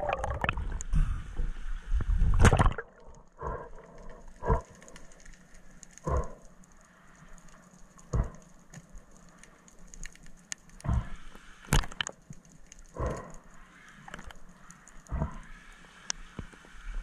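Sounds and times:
sharp click underwater: 10.0 - 12.2.

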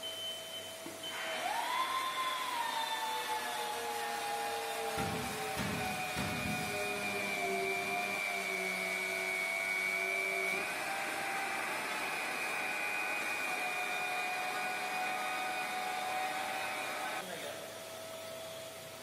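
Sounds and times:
router spindle whine: 0.8 - 17.3.

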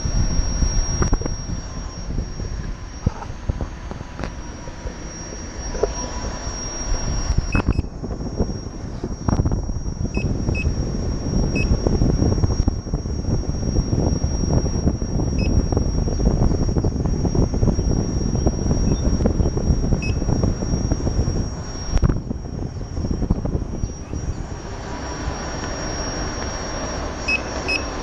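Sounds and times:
high whine: 0.0 - 28.0
wind and tyre rumble: 0.0 - 28.0
short high beeps: 5.1 - 8.0, 10.1 - 10.8, 11.5 - 11.8, 14.0 - 15.8, 20.0 - 20.9, 25.8 - 28.0.

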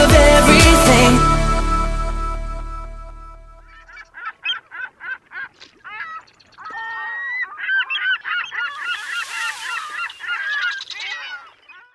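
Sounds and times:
waterfowl honking and calling: 3.8 - 11.9
hiss of noise: 8.8 - 10.3.

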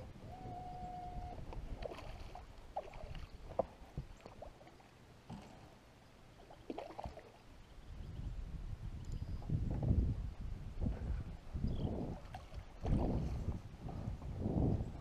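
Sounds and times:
water splashing and gurgling: 1.3 - 7.5, 11.9 - 14.4.

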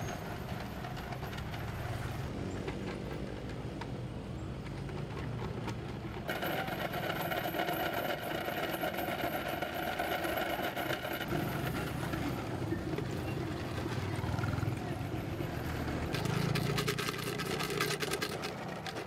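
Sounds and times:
motorcycles and vehicles on road: 0.0 - 19.0.

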